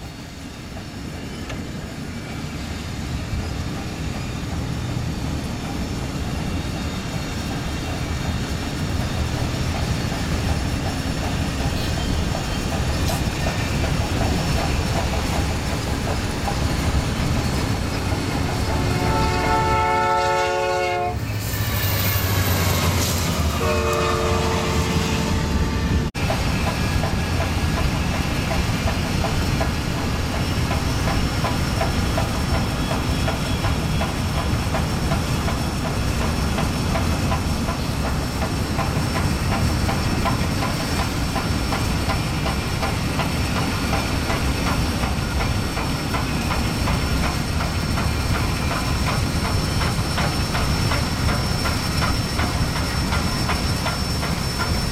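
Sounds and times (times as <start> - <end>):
train rumbling on rails: 0.0 - 54.9
steam locomotive whistle: 18.8 - 21.2, 22.8 - 26.0.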